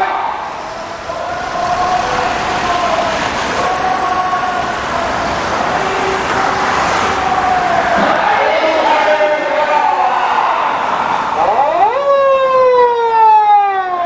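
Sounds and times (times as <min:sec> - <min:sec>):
vehicle engine and tyre noise: 0:00.0 - 0:12.0.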